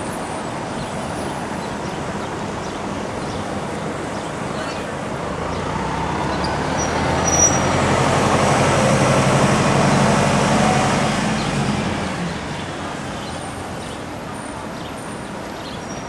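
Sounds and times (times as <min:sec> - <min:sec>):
cars driving past: 0:05.1 - 0:13.8.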